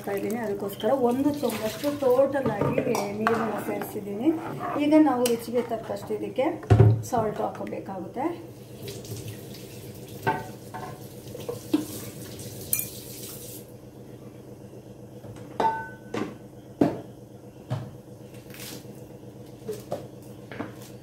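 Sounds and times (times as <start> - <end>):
steady low hum: 0.0 - 8.8.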